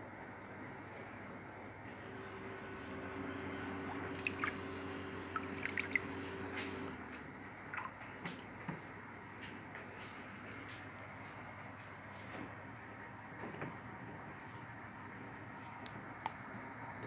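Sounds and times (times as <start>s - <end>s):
steady low hum: 0.0s - 17.0s
water dripping and splashing: 4.0s - 4.6s, 5.3s - 6.2s, 7.1s - 8.4s.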